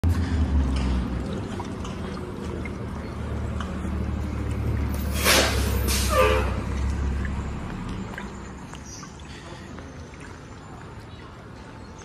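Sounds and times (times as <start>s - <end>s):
bus engine idling: 2.0s - 8.6s
air release hiss: 5.1s - 6.2s.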